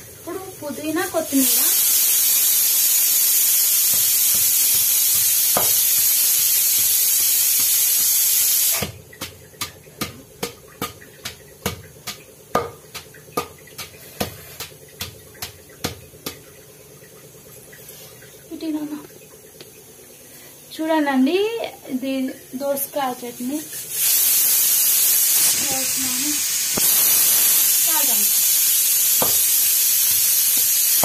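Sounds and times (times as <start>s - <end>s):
loud steady hiss: 0.0s - 8.9s, 23.6s - 31.0s
pestle pounding in stone mortar: 3.8s - 6.2s, 8.8s - 16.4s, 29.2s - 29.5s.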